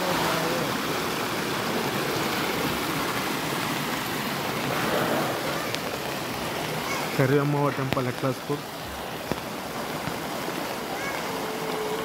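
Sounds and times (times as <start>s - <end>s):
heavy rain rushing: 0.0s - 12.0s.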